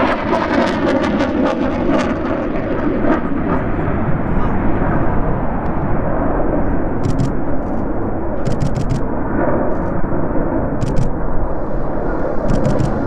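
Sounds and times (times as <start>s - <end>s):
fighter jets rumbling: 0.0s - 13.0s
sharp clicks: 7.0s - 7.8s, 8.5s - 9.0s, 10.8s - 11.1s, 12.5s - 13.0s.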